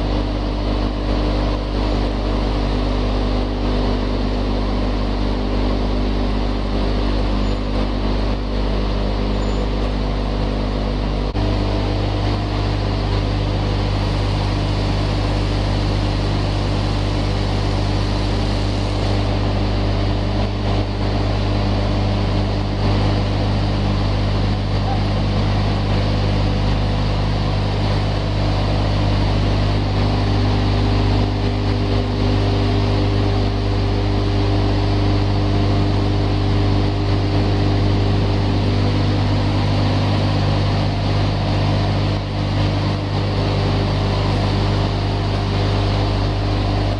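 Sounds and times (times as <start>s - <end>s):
feed machinery drone: 0.0s - 46.9s.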